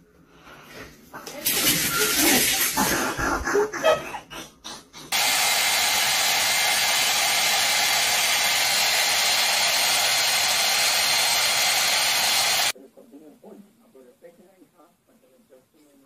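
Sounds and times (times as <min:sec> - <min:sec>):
hair dryer blowing: 0:05.1 - 0:12.8.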